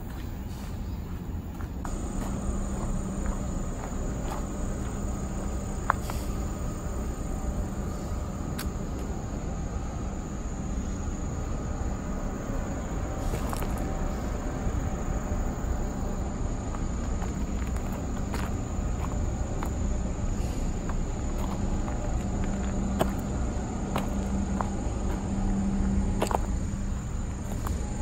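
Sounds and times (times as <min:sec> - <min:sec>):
footsteps on a stony path: 0:00.0 - 0:06.9, 0:13.2 - 0:14.2, 0:16.6 - 0:28.0
crickets trilling: 0:00.0 - 0:28.0
faint steady hum: 0:00.0 - 0:28.0
low rumble: 0:00.0 - 0:28.0.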